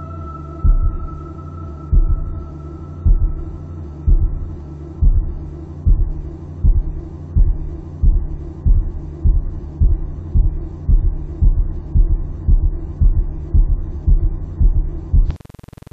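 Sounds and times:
steady low hum: 0:00.0 - 0:15.9
heartbeat thumps: 0:00.6 - 0:01.2, 0:01.9 - 0:02.4, 0:03.0 - 0:15.4.

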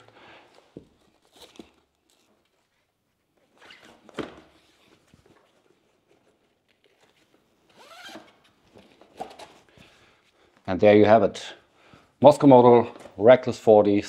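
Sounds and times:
strap webbing handling: 0:00.0 - 0:10.6.

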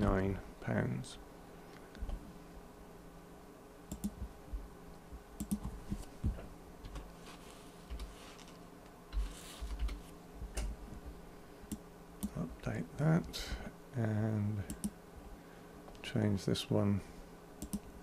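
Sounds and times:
computer keyboard typing: 0:03.9 - 0:04.2, 0:05.4 - 0:05.7.

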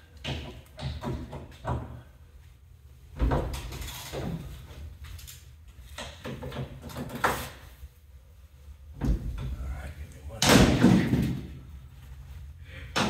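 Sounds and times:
metal clunks and knocks: 0:00.2 - 0:02.1, 0:08.9 - 0:09.6.

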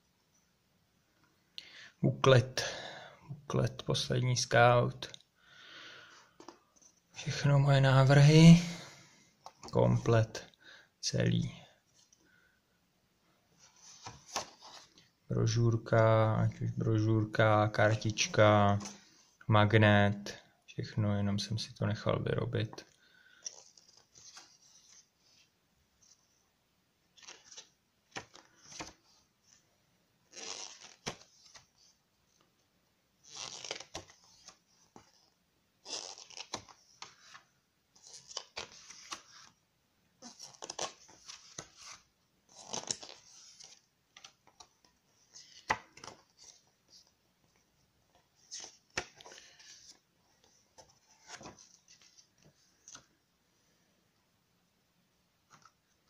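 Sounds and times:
paper pages turning: 0:13.6 - 0:15.0, 0:23.4 - 0:25.5, 0:27.2 - 0:29.6, 0:30.3 - 0:32.4, 0:33.2 - 0:39.6, 0:40.2 - 0:47.2, 0:48.1 - 0:53.2.

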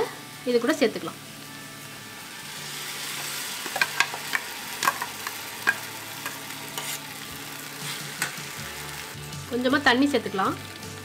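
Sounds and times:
paste sizzling in hot oil: 0:00.6 - 0:11.0
steel ladle scraping vessel: 0:05.6 - 0:07.1.

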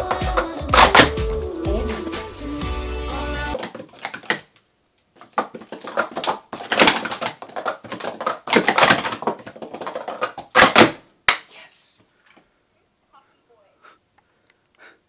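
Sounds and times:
plastic cups clattering: 0:03.6 - 0:04.5, 0:05.2 - 0:11.0.

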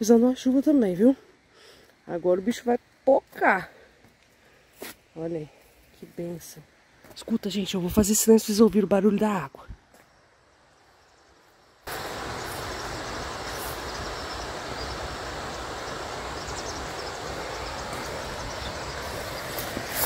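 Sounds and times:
rush of running water: 0:11.9 - 0:20.0.

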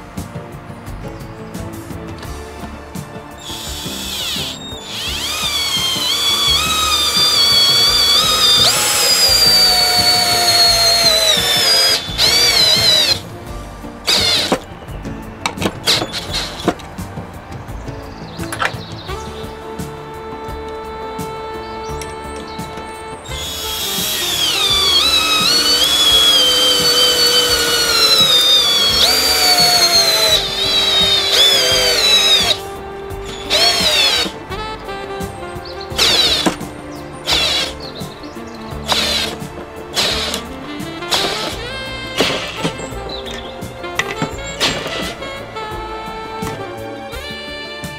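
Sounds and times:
cordless drill whining: 0:02.3 - 0:17.0, 0:18.5 - 0:35.0, 0:35.8 - 0:47.4
drill trigger bursts: 0:03.2 - 0:13.4, 0:14.0 - 0:14.7, 0:15.6 - 0:16.8, 0:20.4 - 0:34.6, 0:35.9 - 0:38.2, 0:38.8 - 0:45.5.

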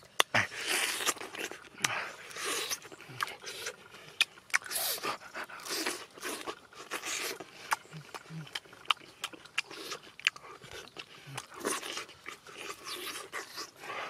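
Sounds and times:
mouth clicks: 0:00.0 - 0:00.4
person chewing and slurping: 0:00.0 - 0:14.0.

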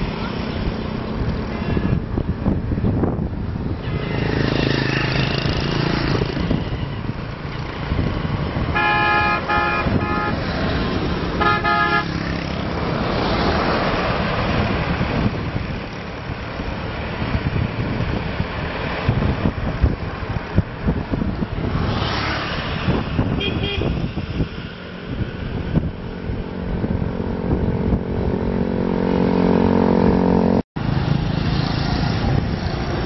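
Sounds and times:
motorbike engines passing: 0:00.0 - 0:33.0
road traffic: 0:00.0 - 0:33.0
vehicle horn honking: 0:01.5 - 0:02.0, 0:08.7 - 0:10.4, 0:11.4 - 0:12.2, 0:23.3 - 0:24.0.

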